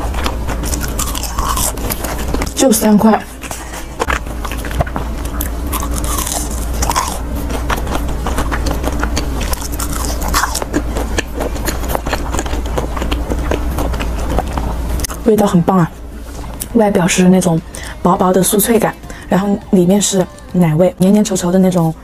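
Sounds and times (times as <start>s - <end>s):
crunchy biting and chewing: 0.0s - 16.7s.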